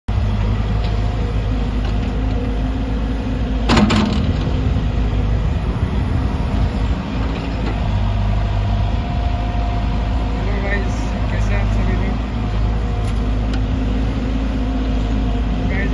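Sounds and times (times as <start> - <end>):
excavator diesel engine running: 0.1 - 15.9
excavator bucket clatter: 3.7 - 4.8.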